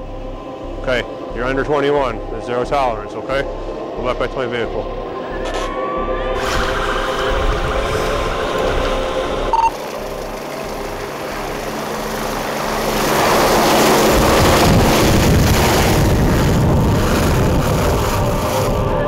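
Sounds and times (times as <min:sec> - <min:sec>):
helicopter rotor rumble: 0:00.0 - 0:05.7, 0:06.3 - 0:19.0.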